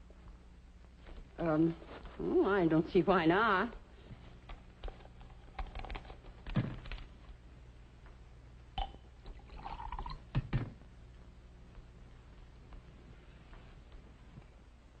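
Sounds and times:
steady low hum: 0.0s - 15.0s
glassware clinking: 8.8s - 10.2s
liquid pouring into glass: 8.8s - 10.3s.

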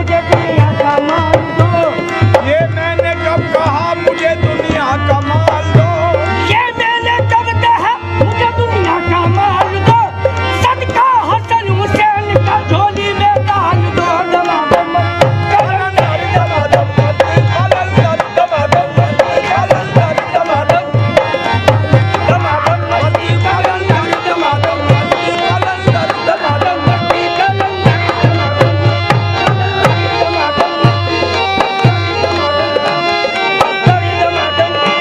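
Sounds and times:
drum beating steady rhythm: 0.0s - 35.0s
harmonium: 0.0s - 35.0s.

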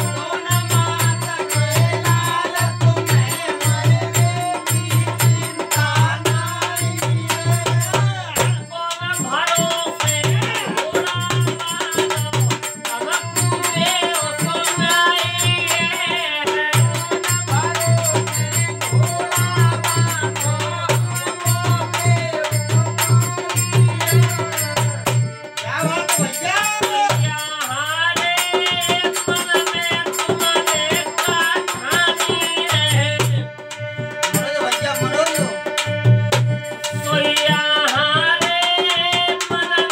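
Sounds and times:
harmonium tone: 0.0s - 39.9s
man singing: 0.0s - 39.9s.

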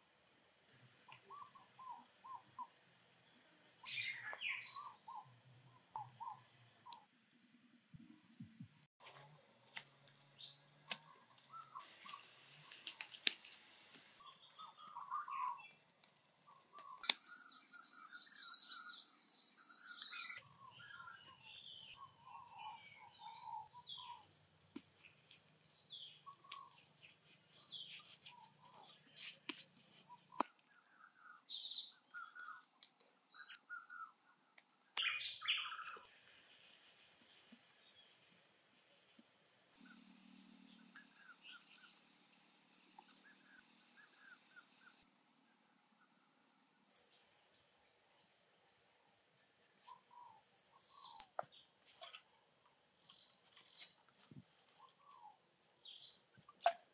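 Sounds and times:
insects droning: 9.0s - 30.4s, 33.2s - 45.8s, 46.9s - 56.9s
birds chirping: 10.4s - 13.1s, 14.1s - 15.8s, 16.4s - 34.2s, 35.0s - 36.1s.

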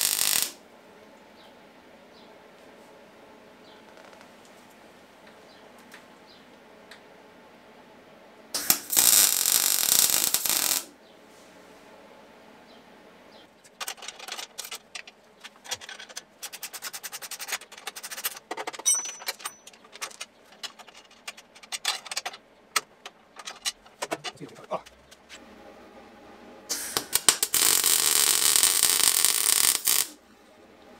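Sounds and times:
welding arc crackling: 0.0s - 0.6s, 8.6s - 10.9s, 26.7s - 30.2s.

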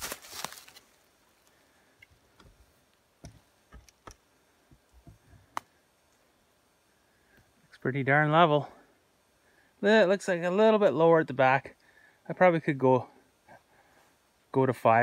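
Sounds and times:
rustle: 0.0s - 15.0s
faint irregular clicks and taps: 2.0s - 6.3s.

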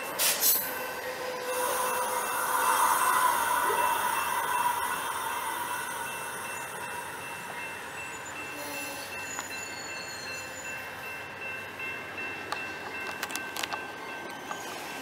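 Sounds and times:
wheels hissing on rail: 0.0s - 11.1s.

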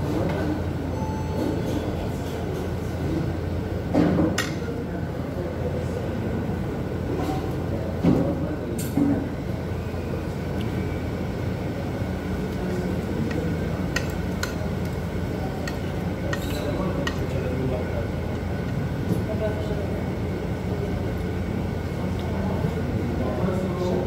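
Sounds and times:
cutlery clinking on plates: 15.6s - 17.4s.

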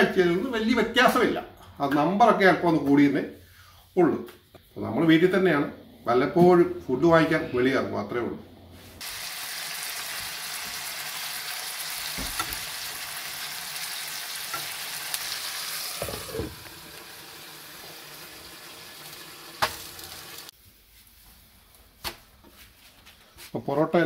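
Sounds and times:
steak sizzling in a frying pan: 9.0s - 20.5s
glass lid on pan: 15.9s - 16.7s.

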